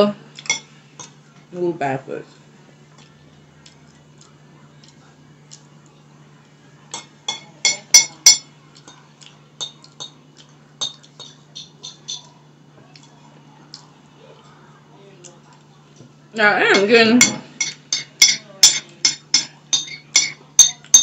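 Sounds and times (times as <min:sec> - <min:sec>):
faint low hum: 0:00.0 - 0:21.0
metal spoon clinking against bowl: 0:06.9 - 0:08.5, 0:10.8 - 0:12.3, 0:16.8 - 0:21.0.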